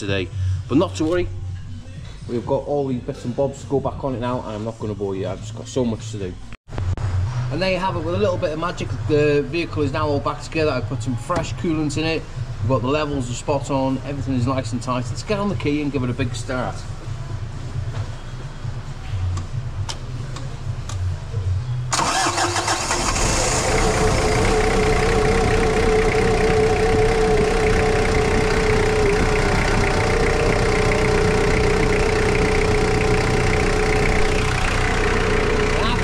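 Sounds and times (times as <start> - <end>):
diesel engine starting and idling: 21.9 - 36.0
steady engine whine: 21.9 - 36.0.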